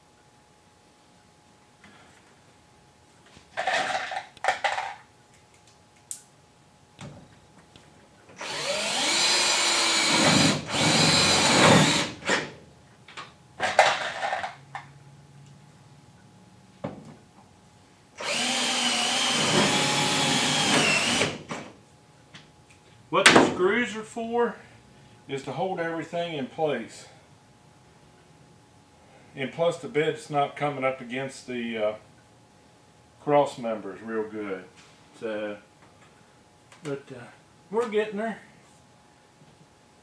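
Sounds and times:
cordless drill driving screws: 8.4s - 12.5s, 18.2s - 21.4s.

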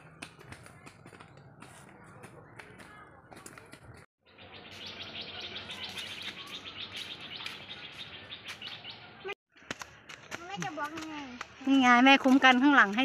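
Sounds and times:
birds and insects chirping: 4.2s - 9.4s.

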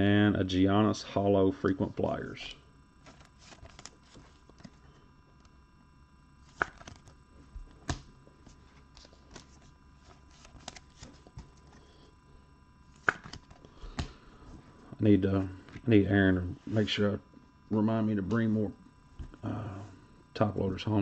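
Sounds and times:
trading cards clicking and tapping: 13.0s - 14.2s.

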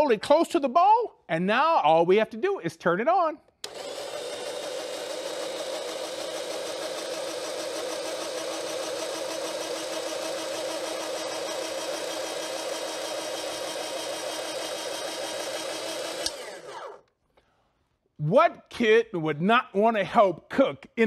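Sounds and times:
electric slicer shredding potato: 3.6s - 17.0s.

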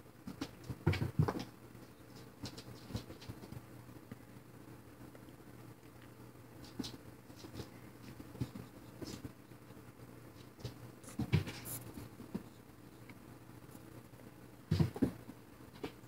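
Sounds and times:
faint low hum: 0.0s - 16.0s
cat paws scrabbling on floor: 0.2s - 3.6s, 6.6s - 9.4s, 10.3s - 12.6s.

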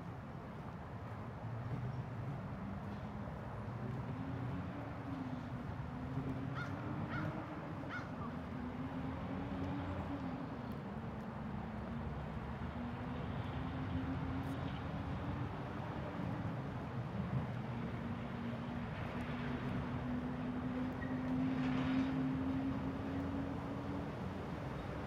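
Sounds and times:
crow cawing: 7.9s - 8.1s.

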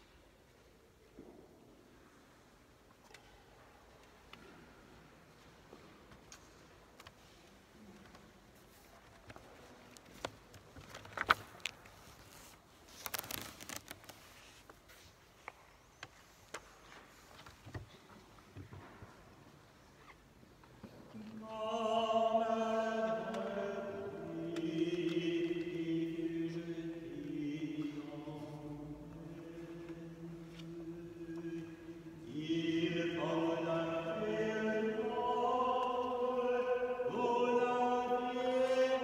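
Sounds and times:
liturgical chant singing: 21.1s - 39.0s.

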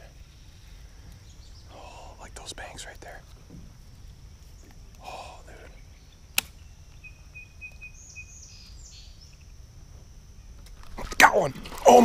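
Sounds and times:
birds chirping faintly: 0.0s - 12.0s
sharp click: 6.3s - 6.6s.

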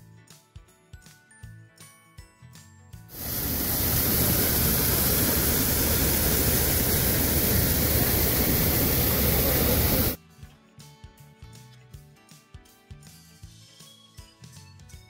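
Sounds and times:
loud static rushing noise: 3.2s - 10.2s.

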